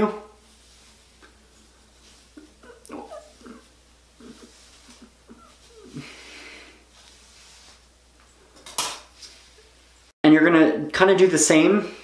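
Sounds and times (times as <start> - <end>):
hair being combed: 0.4 - 7.9
soft breath: 4.2 - 7.8.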